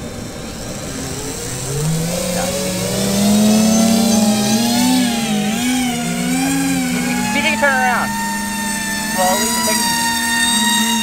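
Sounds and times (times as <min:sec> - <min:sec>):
drone propellers spinning: 0:00.0 - 0:11.0.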